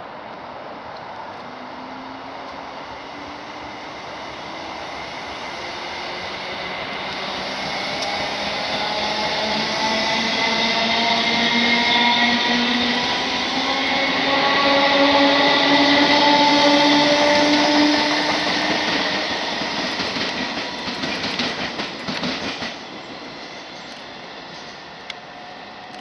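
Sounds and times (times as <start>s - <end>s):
train wheels clicking over rail joints: 17.0s - 23.0s.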